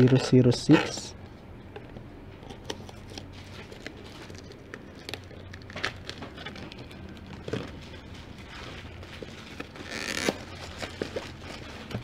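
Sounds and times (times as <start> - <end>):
plastic shrink wrap crinkling: 2.6 - 12.0.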